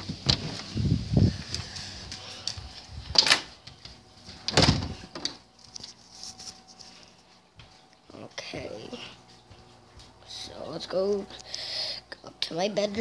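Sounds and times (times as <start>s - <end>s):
door thuds: 4.5s - 5.0s.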